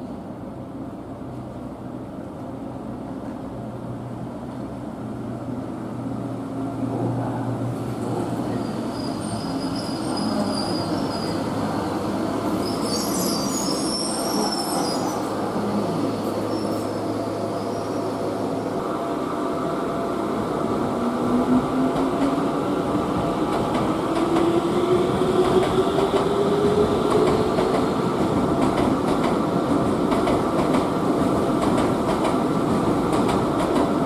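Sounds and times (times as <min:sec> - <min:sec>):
train hum and wheel rumble: 0:00.0 - 0:34.0
high-pitched wheel squeal: 0:08.5 - 0:15.3.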